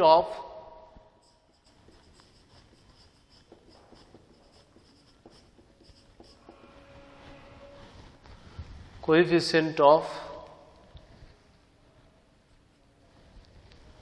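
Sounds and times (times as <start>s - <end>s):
marker scratching on whiteboard: 1.2s - 7.1s
marker tip tapping board: 1.6s - 6.6s.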